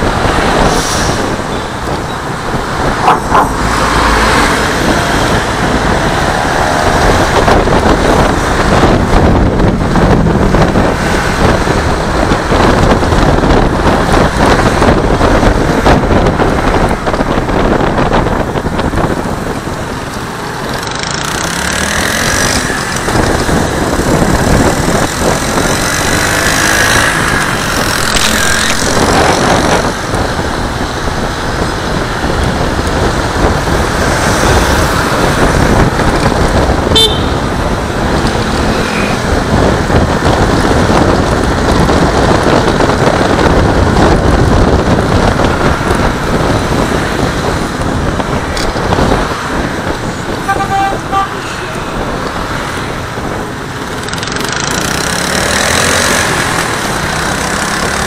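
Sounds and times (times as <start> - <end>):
wind and road noise: 0.0 - 58.0
scooter engine: 19.4 - 58.0.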